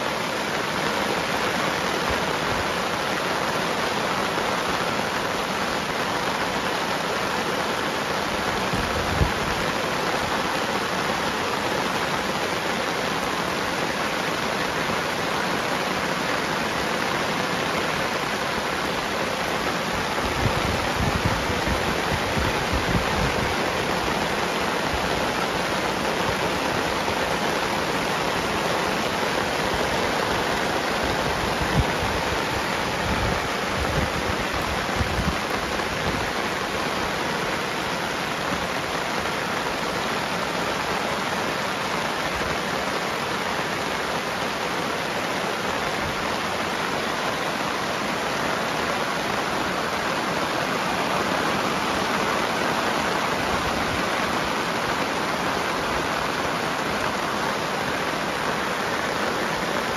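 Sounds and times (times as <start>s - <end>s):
heavy rain hissing: 0.0s - 59.9s.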